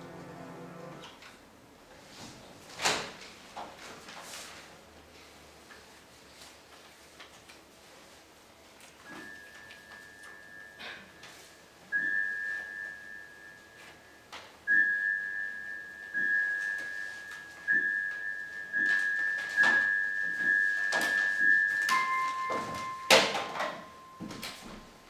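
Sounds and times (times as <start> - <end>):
high whistle-like tone: 9.1 - 11.0, 11.9 - 25.0.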